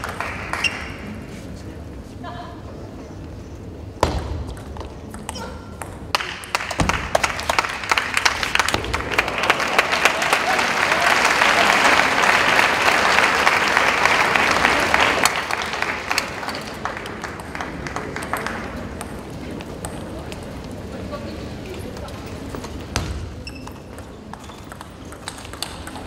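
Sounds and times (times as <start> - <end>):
crowd applauding: 0.0 - 1.1, 6.2 - 19.0.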